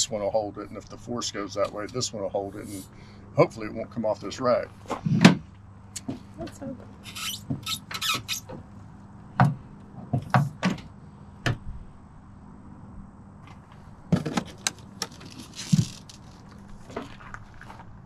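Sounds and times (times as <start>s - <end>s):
short scraping rasps: 7.0s - 8.7s
metal and plastic parts knocking: 14.1s - 16.3s.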